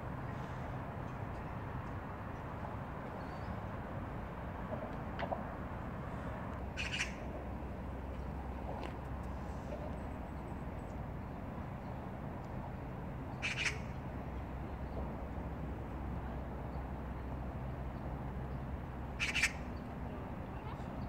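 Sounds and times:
magpie harsh call: 6.8s - 7.2s, 13.4s - 13.9s, 19.2s - 19.6s.

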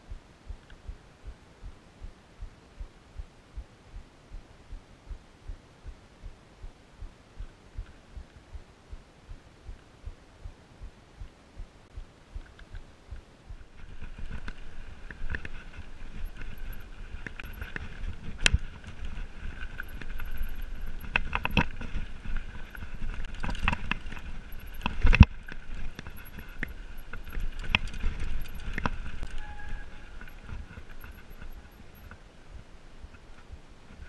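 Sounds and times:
bike rattling: 13.7s - 32.2s
bike tyres rumbling over stones: 13.8s - 31.6s
bike knocking on rocks: 14.1s - 31.6s.

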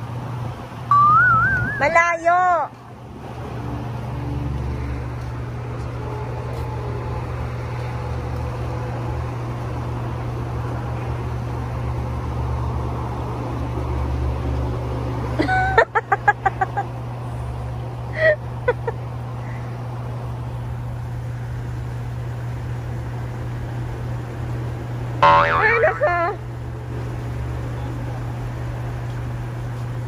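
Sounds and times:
short voice sounds: 25.2s - 26.1s.

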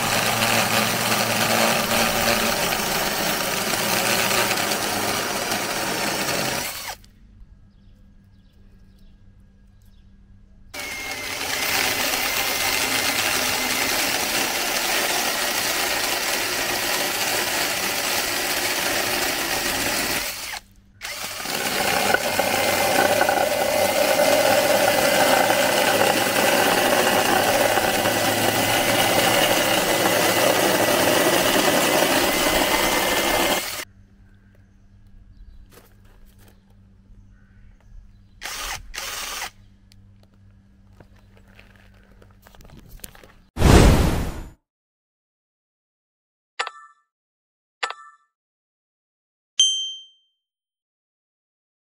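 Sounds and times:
drill motor whine: 0.0s - 7.0s, 10.8s - 33.8s, 38.4s - 39.6s
chain cutting through wood: 0.0s - 7.1s, 10.8s - 33.8s, 38.4s - 39.5s.

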